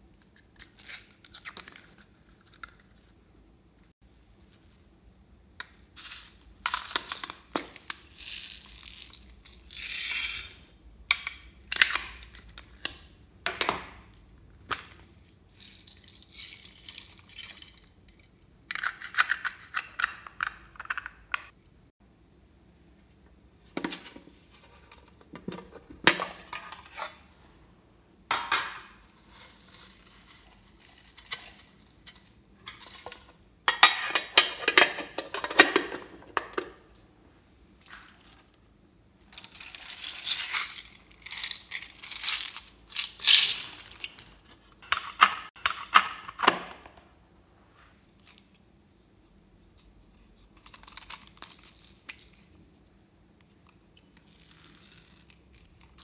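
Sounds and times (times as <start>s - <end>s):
containers opening and clicking: 0.2s - 3.0s, 11.1s - 14.0s, 18.7s - 21.6s, 23.7s - 27.2s, 32.7s - 36.9s, 39.3s - 47.0s
sequins and beads rattling: 7.8s - 10.6s.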